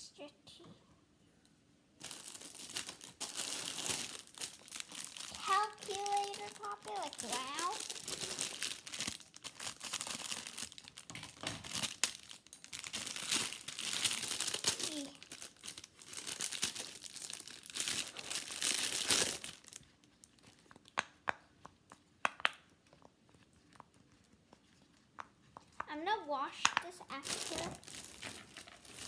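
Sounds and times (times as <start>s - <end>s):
plastic bag crinkling: 2.0s - 20.9s, 26.8s - 29.0s.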